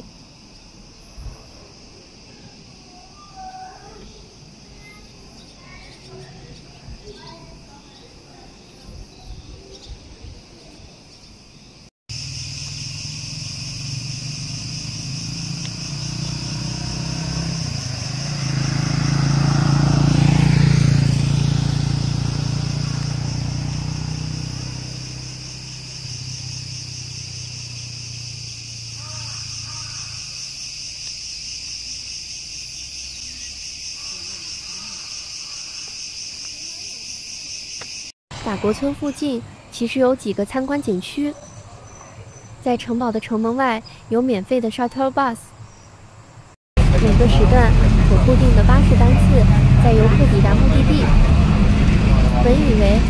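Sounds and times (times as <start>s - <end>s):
insects chorus: 0.0s - 53.0s.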